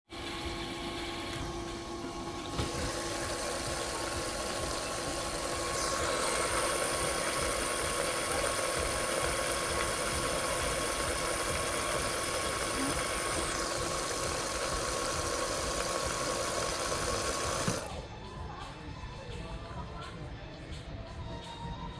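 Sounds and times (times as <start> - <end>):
washing machine water churning: 0.0 - 18.0
mechanical hum: 0.1 - 21.9
hissing: 2.6 - 17.8.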